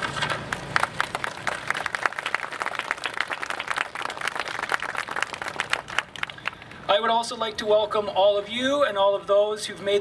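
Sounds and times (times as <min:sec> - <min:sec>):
audience applauding: 0:00.5 - 0:06.6.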